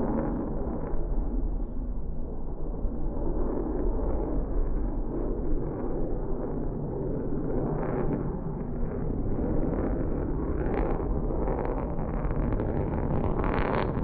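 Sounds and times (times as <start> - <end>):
jet engines roaring overhead: 0.0 - 14.0.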